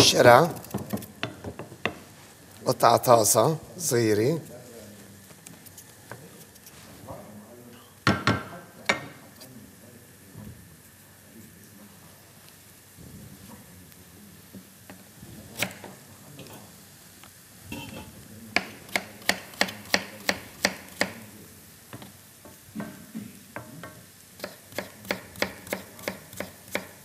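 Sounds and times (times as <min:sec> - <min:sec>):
knife chopping on cutting board: 0:18.6 - 0:21.2, 0:24.4 - 0:27.0.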